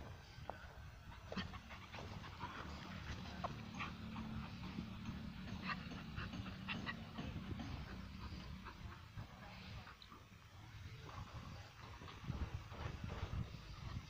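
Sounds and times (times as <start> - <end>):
dog panting: 1.1 - 10.4.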